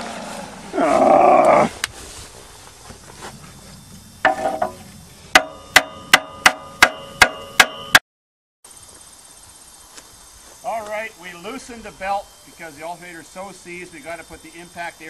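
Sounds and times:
hammer striking metal: 4.2s - 8.0s.

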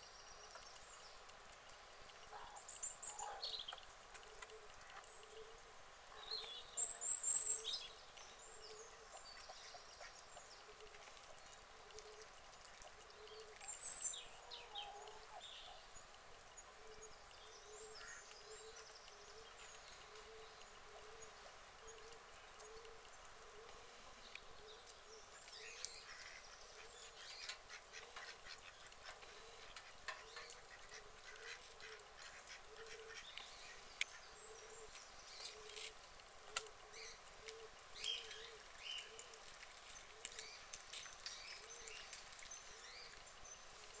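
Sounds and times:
faint clicks: 0.4s - 5.6s, 6.3s - 14.1s, 15.0s - 44.0s
ducks quacking softly: 26.0s - 34.7s.

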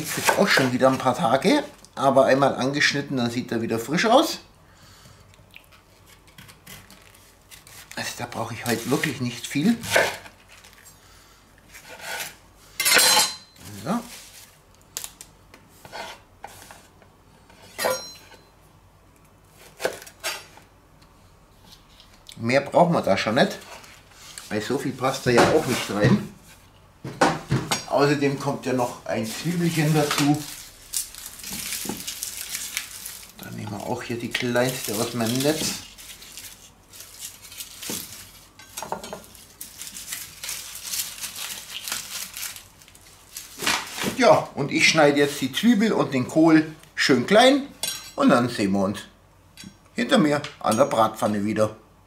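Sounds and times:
knife slicing cabbage on cutting board: 0.0s - 0.8s, 11.7s - 12.4s, 19.6s - 20.5s
cling film rustling: 28.8s - 44.4s
plastic mesh net crinkling: 29.2s - 38.6s, 39.2s - 44.3s.

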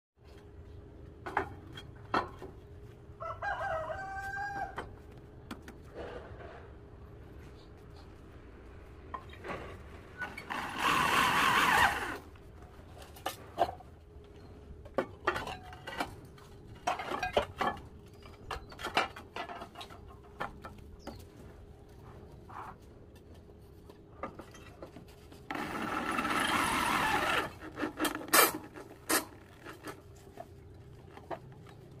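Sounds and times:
roof tiles scraping: 9.1s - 13.8s, 24.2s - 32.0s.

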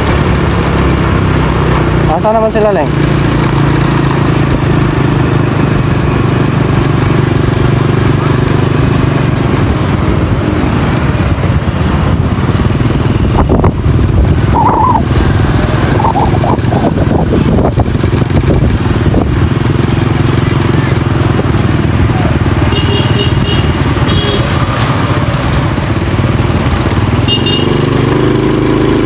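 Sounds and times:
motorcycle engine running: 0.0s - 29.0s.

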